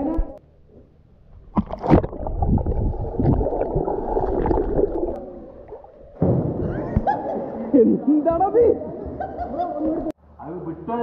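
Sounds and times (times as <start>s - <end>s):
muffled water churning: 1.3s - 7.1s
water splashing in a pool: 1.5s - 6.2s.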